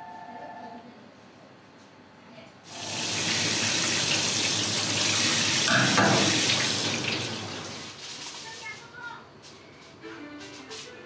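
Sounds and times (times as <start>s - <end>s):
tap water running over fish: 2.8s - 7.9s.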